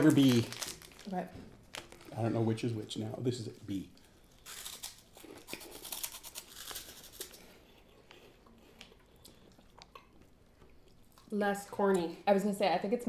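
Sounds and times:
crunchy snack being chewed: 0:03.9 - 0:11.3.

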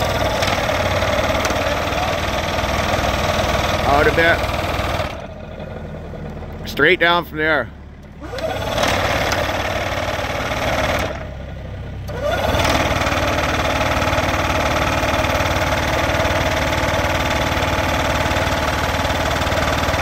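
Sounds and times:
hydraulic post driver hammering: 0:00.0 - 0:05.3, 0:08.0 - 0:11.3, 0:12.1 - 0:20.0
excavator engine running: 0:00.0 - 0:20.0.

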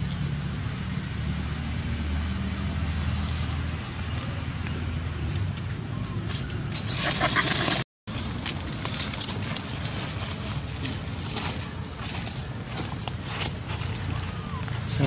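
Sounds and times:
dry leaves rustling and crackling: 0:02.9 - 0:05.0, 0:07.4 - 0:15.0.

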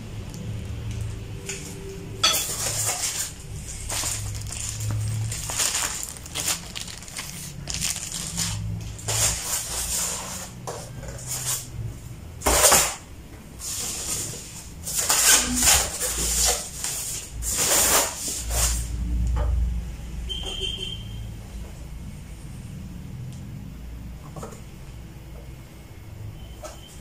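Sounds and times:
plastic wrapping rustling: 0:00.0 - 0:11.8, 0:13.6 - 0:19.0
foam packaging scraping: 0:02.5 - 0:10.6, 0:13.6 - 0:19.0.

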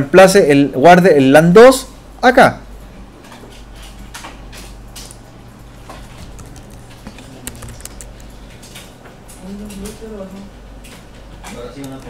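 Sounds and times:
mouse and keyboard clicks: 0:06.2 - 0:08.9.

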